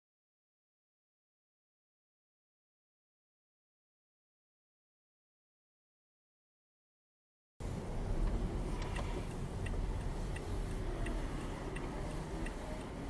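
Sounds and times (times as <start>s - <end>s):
low rumble of stopped car: 7.6s - 13.0s
turn signal ticking: 7.6s - 13.0s.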